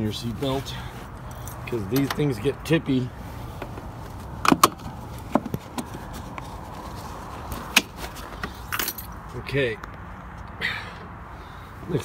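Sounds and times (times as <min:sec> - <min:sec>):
seat belt buckle clicking: 0:04.4 - 0:05.9.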